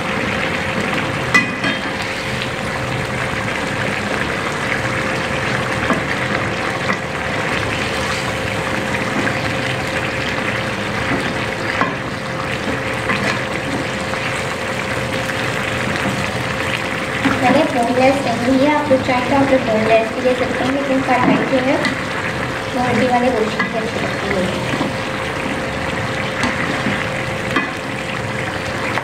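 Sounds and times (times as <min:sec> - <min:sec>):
curry bubbling and sizzling: 0:00.0 - 0:29.0.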